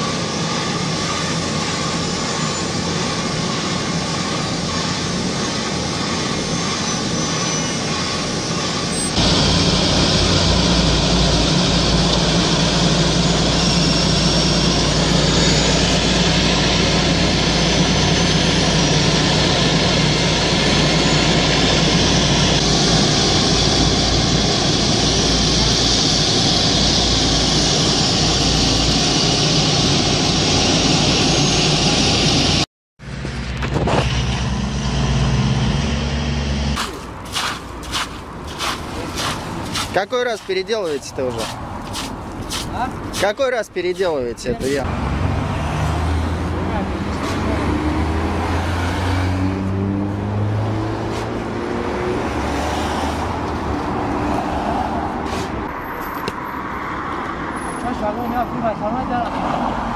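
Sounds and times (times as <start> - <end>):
road roller engine humming: 0.0 - 43.2, 44.0 - 59.9
diesel engine rumble and hiss: 9.2 - 17.6, 54.9 - 56.2
passing car traffic: 33.0 - 59.9.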